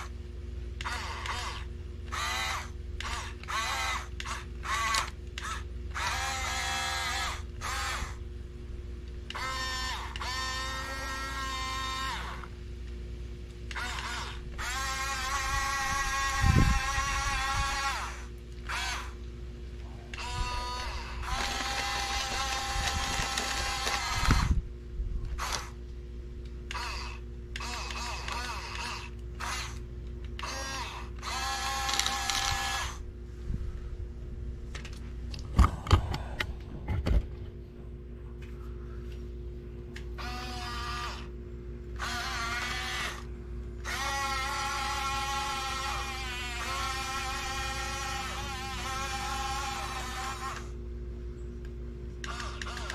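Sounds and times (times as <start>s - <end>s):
toy motors whining: 0.8s - 8.3s, 9.2s - 12.6s, 13.7s - 19.2s, 20.1s - 24.6s, 25.2s - 25.8s, 26.7s - 33.0s, 40.2s - 41.3s, 41.9s - 50.8s, 52.2s - 52.9s.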